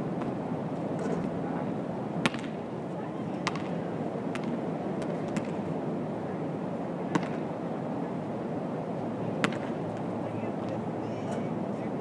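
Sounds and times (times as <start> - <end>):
basketball bouncing on hard court: 2.2 - 2.6, 3.4 - 5.6, 7.1 - 7.4, 9.4 - 9.7.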